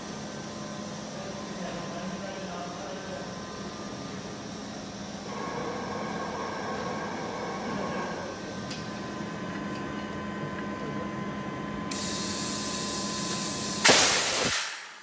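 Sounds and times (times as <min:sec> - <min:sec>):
workshop hum: 0:00.0 - 0:15.0
loud blast of air: 0:13.8 - 0:15.0.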